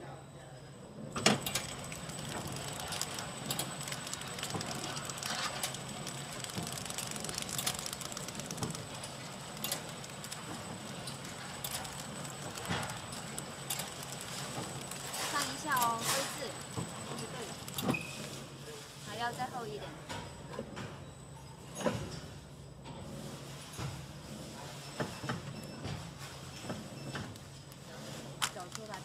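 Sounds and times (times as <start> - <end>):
packaging machine clattering: 1.2 - 18.2, 26.5 - 29.0.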